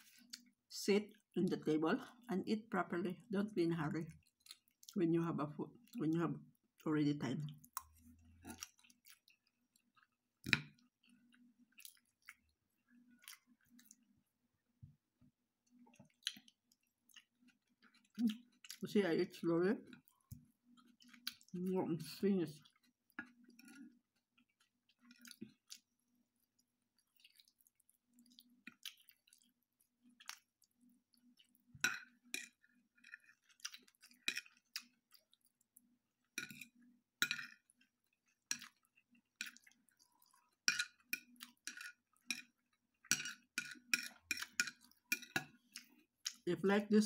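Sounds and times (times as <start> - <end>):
chewing and mouth sounds: 0.0 - 1.3, 4.1 - 5.0, 7.4 - 14.1, 15.6 - 18.8, 19.8 - 21.6, 22.5 - 46.5
cutlery clicking on a plate: 43.1 - 45.6.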